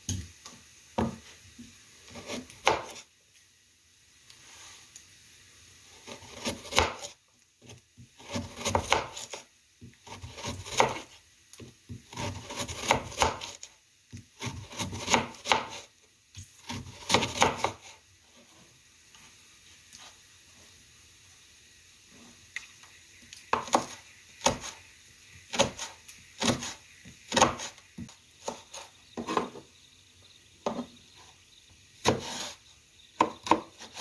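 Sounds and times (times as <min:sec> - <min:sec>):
knife slicing carrot: 0:02.0 - 0:03.0, 0:06.0 - 0:07.2, 0:08.2 - 0:09.4, 0:10.0 - 0:13.6, 0:14.4 - 0:18.0, 0:23.5 - 0:24.8, 0:25.5 - 0:29.6, 0:32.0 - 0:32.6
blade knocking cutting board: 0:23.5 - 0:24.7, 0:33.2 - 0:33.9.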